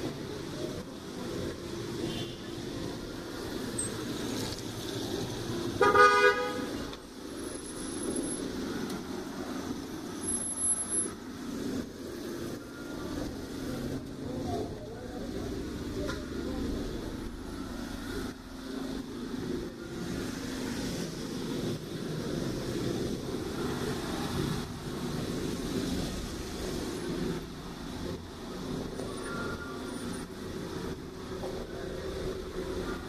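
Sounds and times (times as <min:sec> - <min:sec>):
traffic on wet street: 0:00.0 - 0:33.0
car horn honk: 0:05.8 - 0:06.7.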